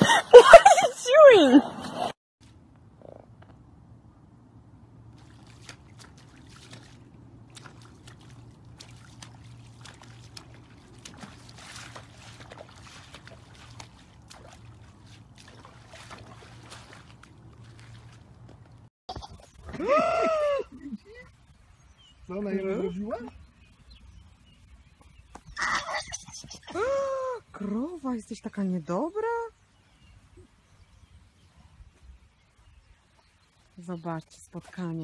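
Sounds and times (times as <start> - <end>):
horse hoof splashing in puddle: 5.1 - 18.9.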